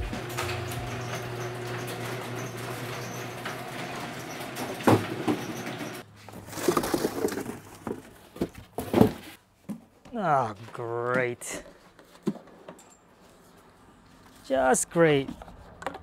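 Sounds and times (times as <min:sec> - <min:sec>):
garage door opener humming: 0:00.0 - 0:06.1
rustling: 0:06.1 - 0:10.0.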